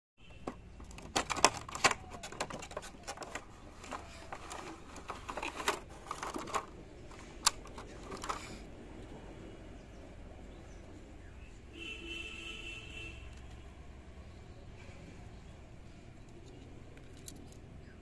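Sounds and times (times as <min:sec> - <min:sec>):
plastic tray crinkling: 0:00.8 - 0:06.8.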